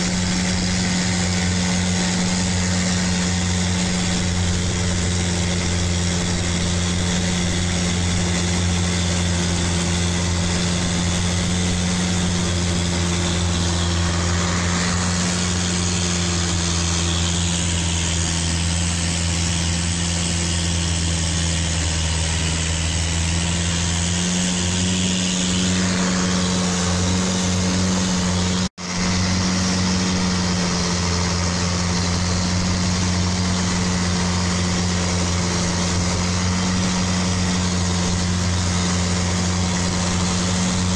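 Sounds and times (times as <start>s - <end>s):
boat engine drone: 0.0s - 40.9s
water hissing: 0.0s - 40.9s
wind: 0.0s - 40.9s.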